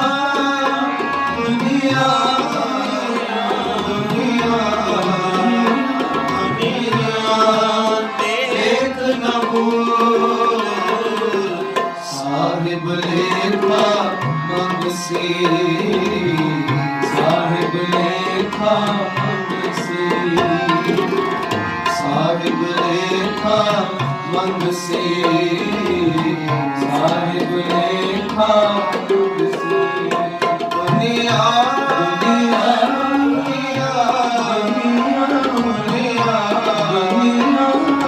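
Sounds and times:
person singing devotional melody: 0:00.0 - 0:38.0
tabla: 0:00.0 - 0:38.0.

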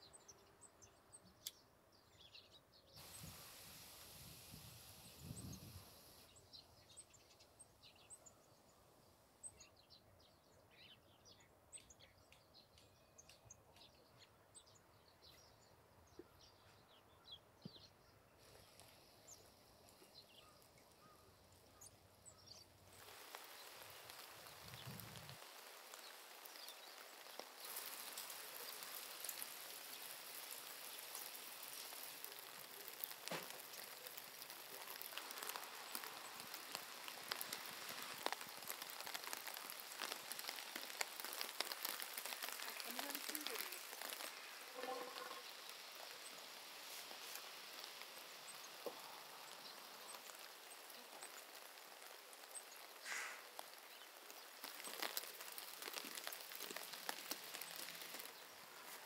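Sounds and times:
small birds chirping: 0:00.0 - 0:59.0
rain falling: 0:03.0 - 0:06.3, 0:22.8 - 0:59.0.

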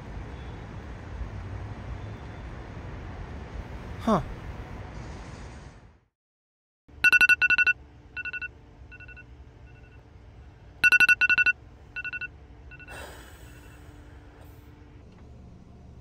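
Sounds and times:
phone alarm beeps: 0:07.0 - 0:10.0, 0:10.8 - 0:13.0.

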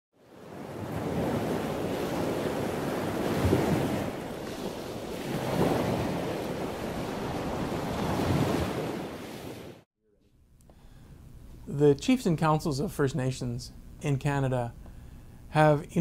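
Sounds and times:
ocean waves breaking: 0:00.1 - 0:09.9.

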